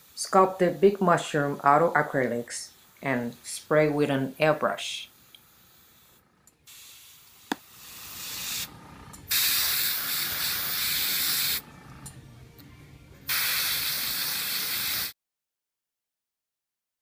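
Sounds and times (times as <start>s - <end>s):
airbrush hissing: 5.4s - 12.2s, 13.3s - 15.1s.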